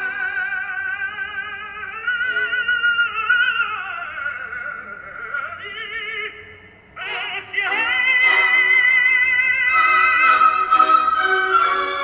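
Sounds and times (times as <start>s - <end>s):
high melody with heavy vibrato: 9.6s - 12.0s.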